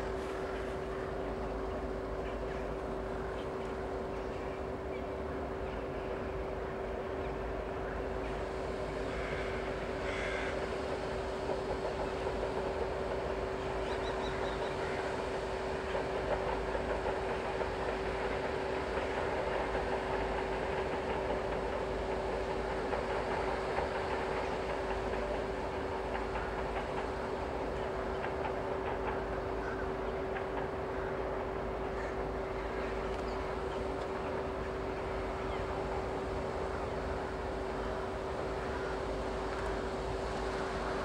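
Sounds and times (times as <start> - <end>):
train rumble and hiss: 0.0 - 41.0.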